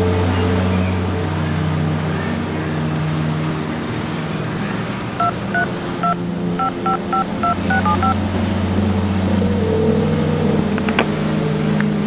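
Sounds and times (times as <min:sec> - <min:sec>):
phone keypad touch-tone beeps: 0:05.2 - 0:08.2.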